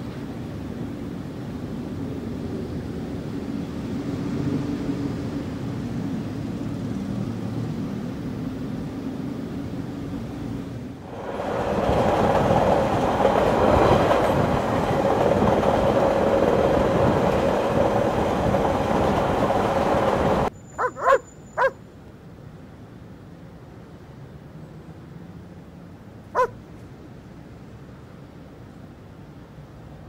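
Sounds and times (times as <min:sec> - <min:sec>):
train rumbling on rails: 0:07.4 - 0:21.8, 0:26.3 - 0:30.0
dog barking: 0:20.8 - 0:21.8, 0:26.4 - 0:26.6.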